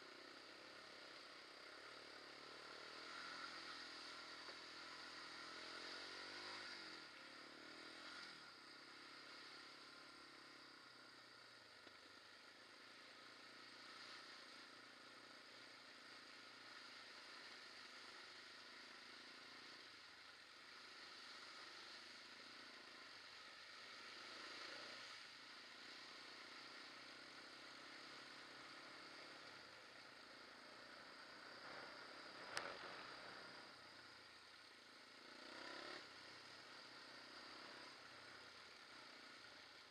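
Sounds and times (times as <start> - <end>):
quad bike engine running: 0.0 - 39.9.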